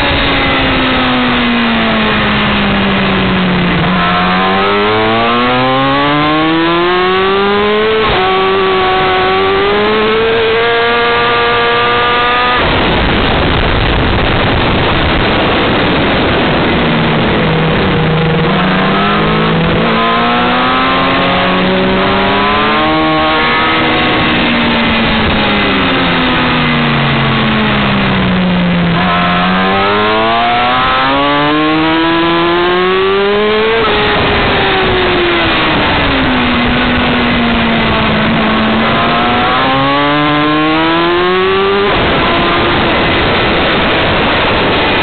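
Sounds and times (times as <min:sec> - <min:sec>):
motorcycle engine revving: 0:00.0 - 0:45.0
wind rush over microphone: 0:00.0 - 0:45.0.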